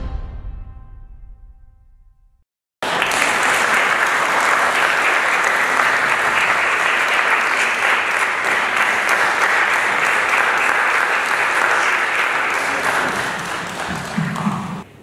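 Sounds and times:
audience applauding: 0:02.8 - 0:14.9.

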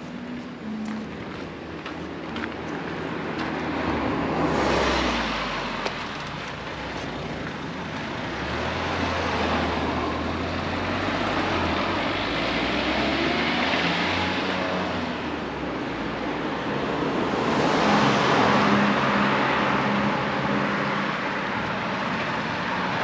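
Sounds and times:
car engine and tyre noise: 0:00.0 - 0:23.0
car passing by: 0:03.0 - 0:07.2, 0:08.1 - 0:15.3, 0:16.6 - 0:23.0.

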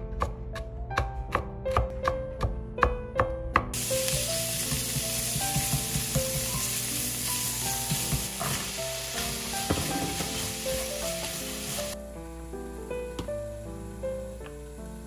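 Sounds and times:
knife chopping on cutting board: 0:00.1 - 0:03.0, 0:04.7 - 0:06.5
beans clattering into pan: 0:03.8 - 0:12.0
food sizzling in frying pan: 0:03.8 - 0:15.0.

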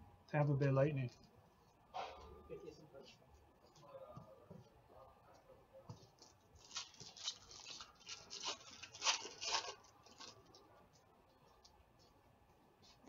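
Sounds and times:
foil wrapper crinkling: 0:06.6 - 0:10.6.

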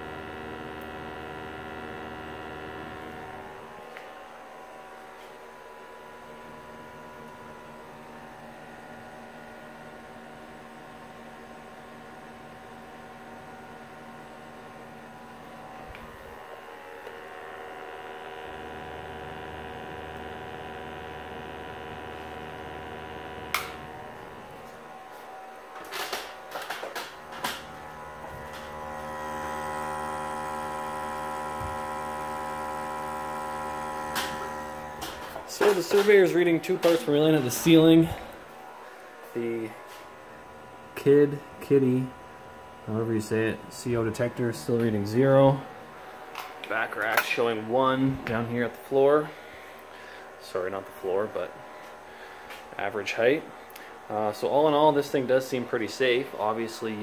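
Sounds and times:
small electric motor humming: 0:00.0 - 0:03.8, 0:14.1 - 0:25.2, 0:27.2 - 0:36.0.

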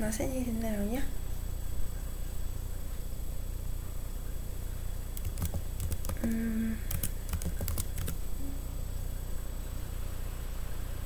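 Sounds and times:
keyboard typing: 0:05.2 - 0:08.2.

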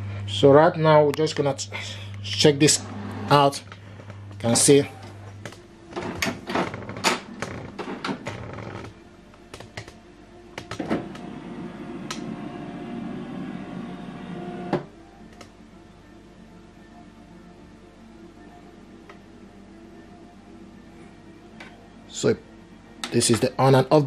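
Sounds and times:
printer motor whir: 0:10.9 - 0:14.9.

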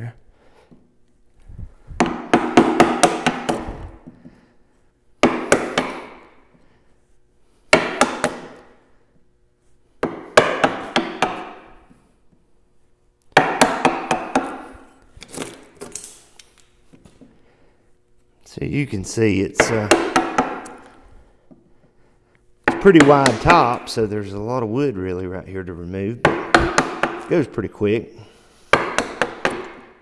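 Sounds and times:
mallet striking chisel: 0:02.0 - 0:03.7, 0:05.2 - 0:06.3, 0:07.7 - 0:08.6, 0:10.0 - 0:11.7, 0:13.4 - 0:14.8, 0:19.6 - 0:20.8, 0:22.7 - 0:23.9, 0:26.2 - 0:27.3, 0:28.7 - 0:30.0.

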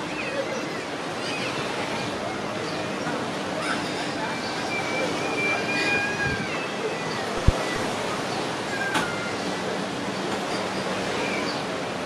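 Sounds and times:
sea surf against rocks: 0:04.4 - 0:10.4.

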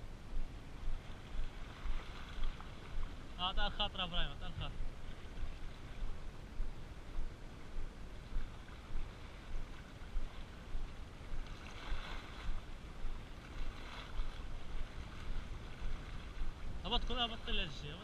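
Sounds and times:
wind rumbling on microphone: 0:00.0 - 0:18.0
small waves washing on rocks: 0:11.2 - 0:17.8.

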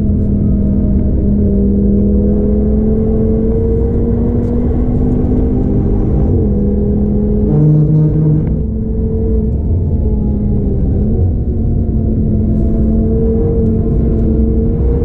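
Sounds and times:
car engine accelerating hard: 0:00.0 - 0:15.0
wind and road noise: 0:00.0 - 0:15.0.

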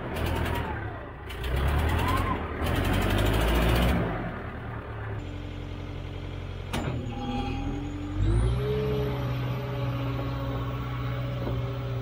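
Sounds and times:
skid steer engine revving: 0:00.0 - 0:12.0.

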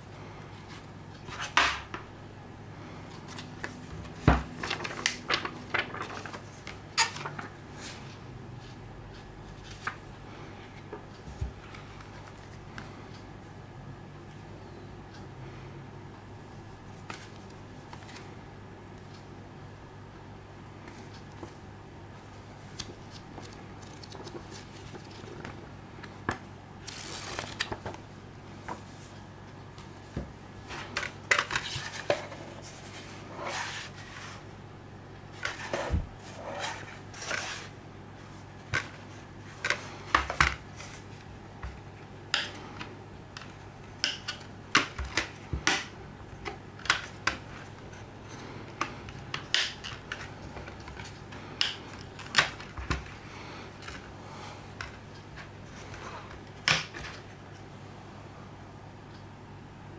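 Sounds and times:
low steady hum: 0:00.0 - 0:59.9
pages rustling and flicking: 0:03.1 - 0:08.2, 0:22.6 - 0:28.0, 0:35.4 - 0:41.3.

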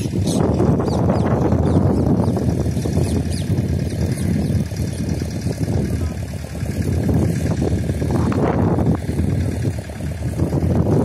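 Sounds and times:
boat engine rumble: 0:00.0 - 0:11.0.

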